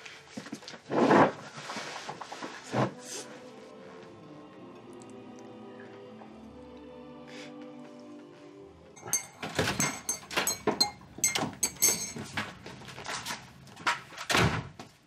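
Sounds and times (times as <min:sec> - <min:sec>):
knocks and clatters: 0:09.0 - 0:14.4.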